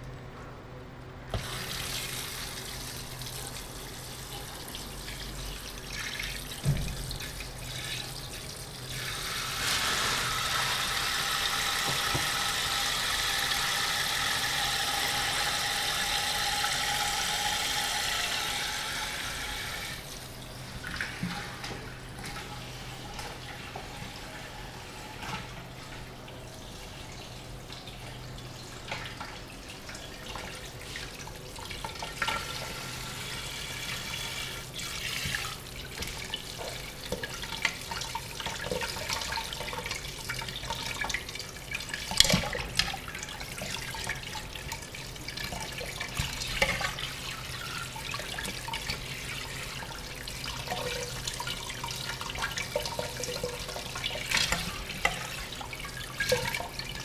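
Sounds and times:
tap water spraying into a metal pot: 0:08.9 - 0:20.0.

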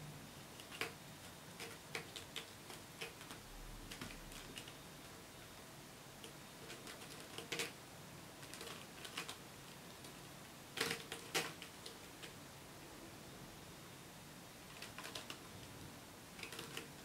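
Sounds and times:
kitten claws scratching rope: 0:00.6 - 0:04.8, 0:06.2 - 0:07.8, 0:08.4 - 0:09.4, 0:10.8 - 0:12.4, 0:14.7 - 0:15.4, 0:16.4 - 0:17.0.

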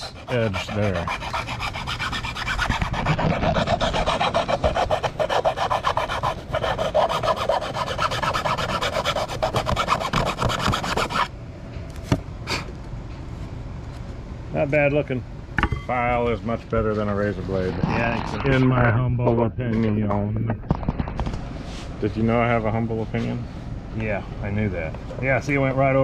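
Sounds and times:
hand file rasping: 0:00.0 - 0:11.3.

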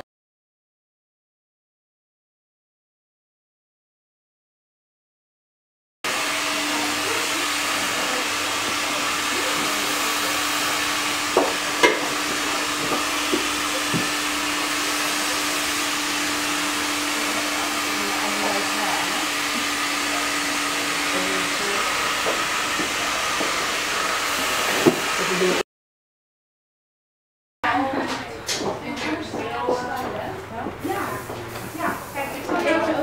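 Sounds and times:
hair dryer blowing: 0:06.1 - 0:25.6.

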